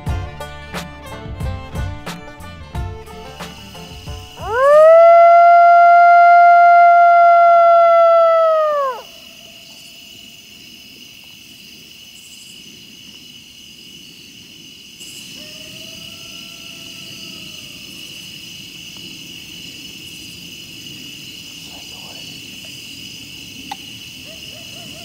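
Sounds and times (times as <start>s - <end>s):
crickets trilling: 2.3s - 25.0s
distant coyote howl: 4.4s - 9.5s, 15.2s - 18.2s, 24.2s - 25.0s.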